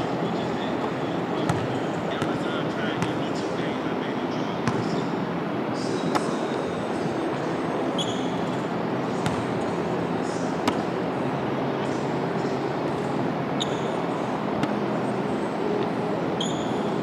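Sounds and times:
fans blowing air: 0.0 - 17.0
basketballs bouncing on hardwood floor: 1.5 - 2.4, 4.6 - 4.9, 9.2 - 9.6
sneaker squeaks: 7.8 - 9.8, 13.6 - 14.1, 16.4 - 17.0.

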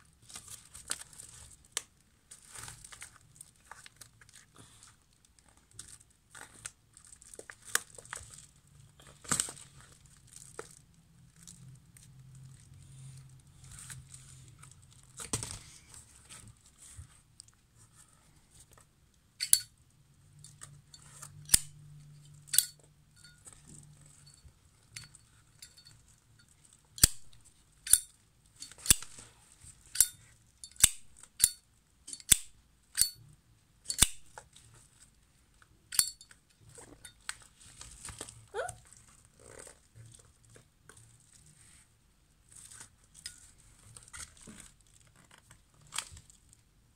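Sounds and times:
soft handling noise: 0.0 - 21.5, 33.1 - 46.9.

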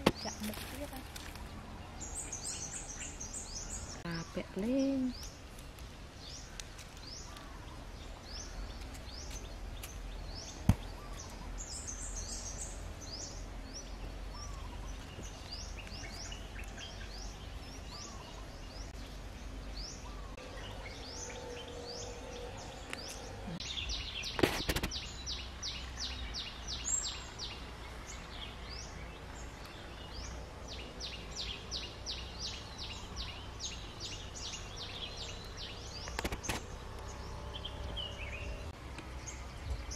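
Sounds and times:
crackle: 0.0 - 1.5, 5.4 - 7.6
small birds chirping: 0.0 - 39.9.

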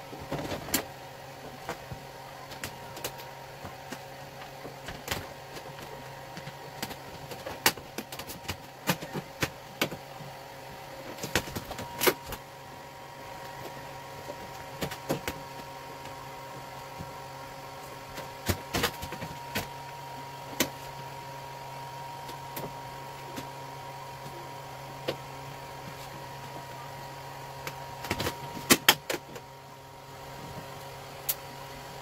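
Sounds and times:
vinyl film crackling: 0.0 - 10.2
steady hum: 0.0 - 32.0.

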